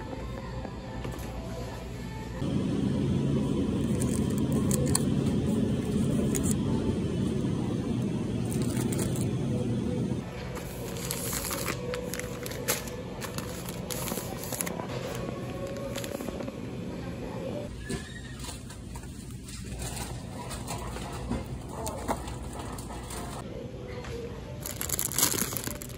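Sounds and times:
store background noise: 0.0s - 25.9s
plastic wrapping crinkling: 10.5s - 16.4s, 24.6s - 25.9s.

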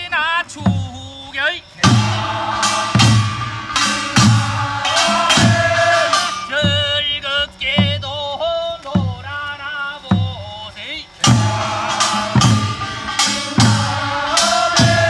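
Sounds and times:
folk band melody: 0.0s - 15.0s
drum beating: 0.5s - 15.0s.

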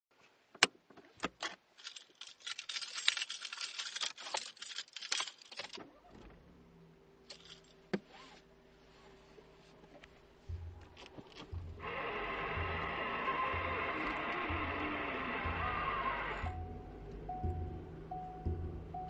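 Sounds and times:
rattling of small hard objects: 1.2s - 5.8s, 7.3s - 7.8s
low steady hum: 5.4s - 19.0s.

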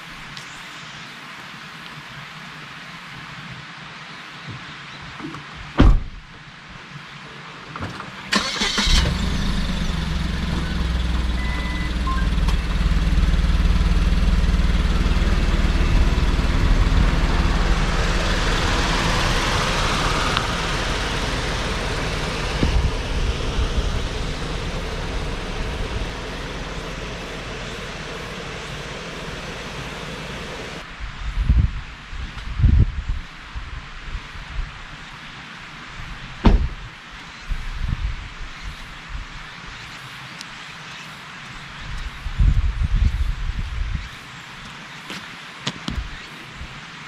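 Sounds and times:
thump: 5.8s - 6.2s, 22.6s - 22.9s, 36.4s - 36.8s
car engine starting and humming: 8.0s - 30.9s
car driving past: 8.4s - 30.8s.

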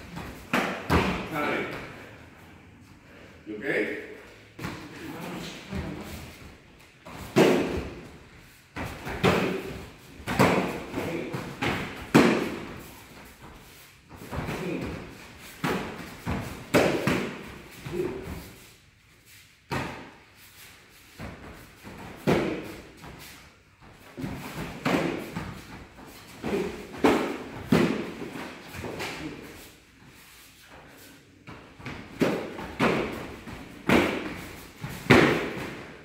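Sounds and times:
kicks thudding on padded protectors: 31.8s - 35.8s.

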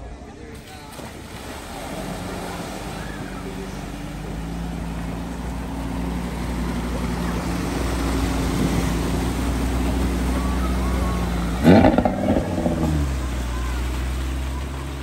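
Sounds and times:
car engine hum: 0.4s - 15.0s
water surging and sloshing: 0.4s - 15.0s.

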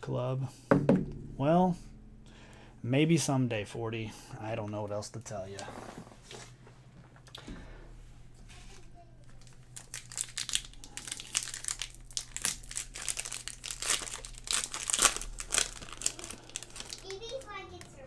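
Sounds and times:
foil wrapper crinkling and tearing: 8.7s - 18.0s.

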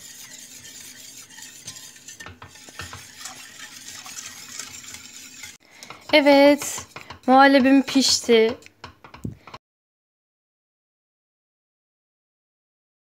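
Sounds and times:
whisk clicking against pot: 0.0s - 9.6s
whisk swishing in pot: 0.0s - 9.6s.

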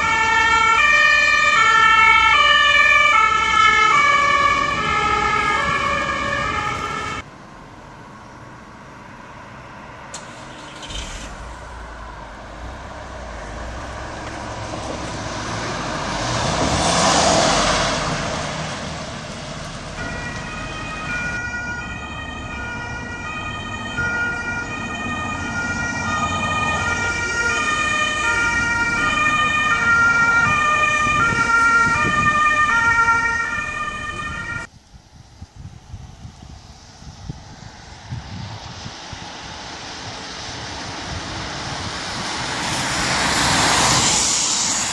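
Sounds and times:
two-tone siren: 0.0s - 7.2s, 19.9s - 34.7s
ambulance passing: 0.0s - 34.7s, 37.5s - 44.9s.

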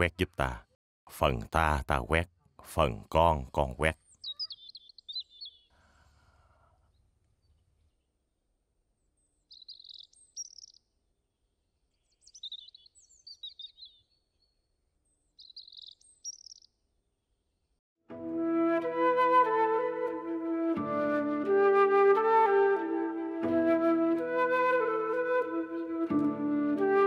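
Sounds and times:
small songbirds chirping: 3.9s - 5.9s, 6.8s - 17.8s.

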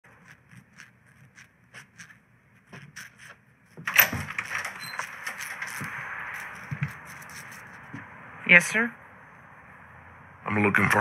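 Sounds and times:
soft footsteps: 0.0s - 8.2s
glass panel door clattering open: 3.9s - 5.6s.

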